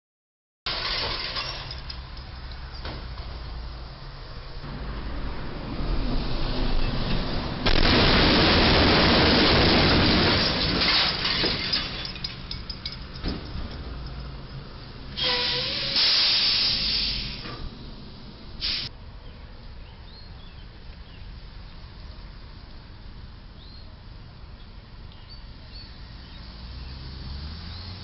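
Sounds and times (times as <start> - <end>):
low traffic rumble: 0.7 - 28.0
air hissing: 15.2 - 17.6, 18.6 - 18.9
faint bird chirps: 23.6 - 24.0.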